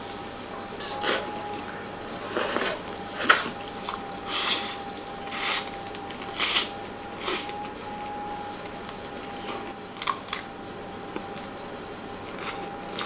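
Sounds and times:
faint high tone: 0.5 - 4.9.

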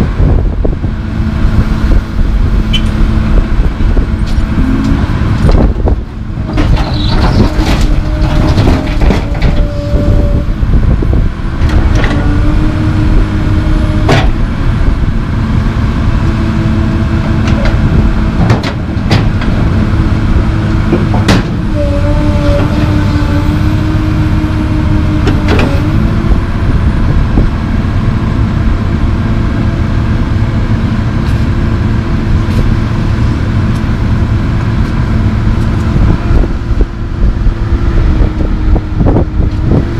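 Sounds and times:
hydraulic whine: 0.0 - 30.0
excavator diesel engine running: 0.0 - 39.9
concrete clunking into steel truck: 6.4 - 10.1, 20.9 - 23.0.

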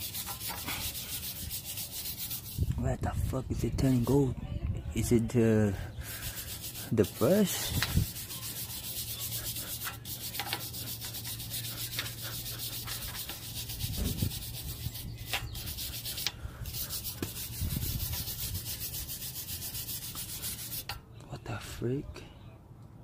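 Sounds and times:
wire brush scrubbing metal: 0.0 - 2.7, 6.0 - 21.0.

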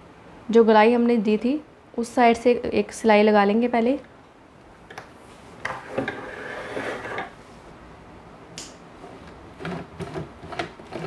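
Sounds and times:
cloth rubbing on tabletop: 5.3 - 7.3
sharp click: 8.6 - 8.8.

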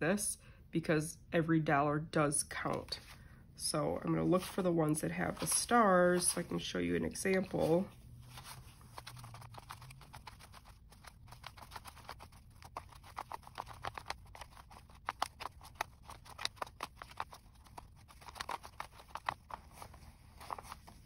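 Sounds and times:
paper bills flicking and rustling: 4.4 - 21.0.

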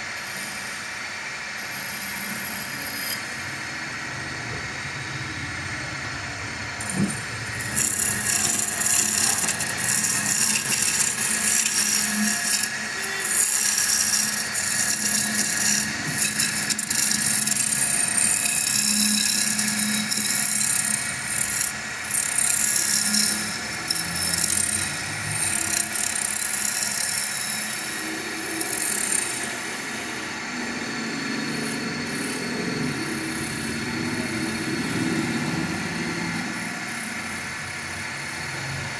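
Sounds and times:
wood lathe turning tool scraping: 6.8 - 38.6.

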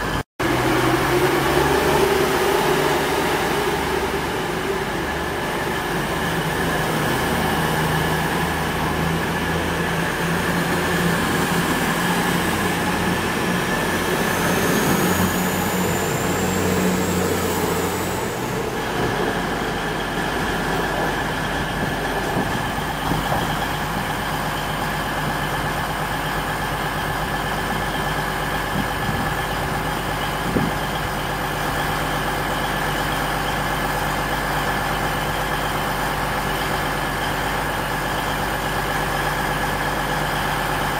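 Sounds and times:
rising whine: 0.0 - 23.7
diesel train engines running: 0.0 - 40.9
train engines idling: 0.0 - 40.9.

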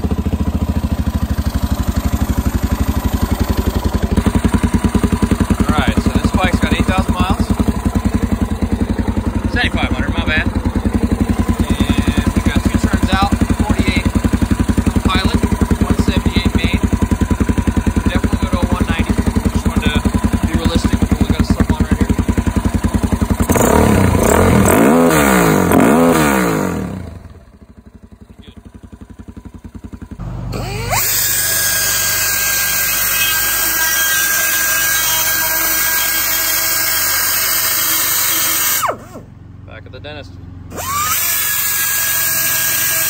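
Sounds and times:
motorcycle engine idling and revving: 0.0 - 43.0
die grinder cutting plastic: 30.5 - 39.3, 40.7 - 43.0.

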